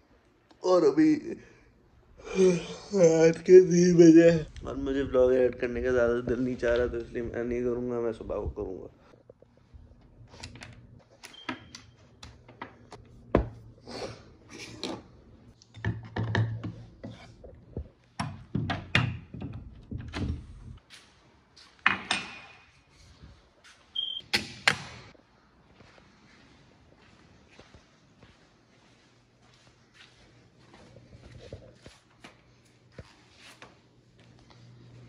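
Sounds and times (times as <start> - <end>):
objects knocking and thudding: 15.7 - 20.4.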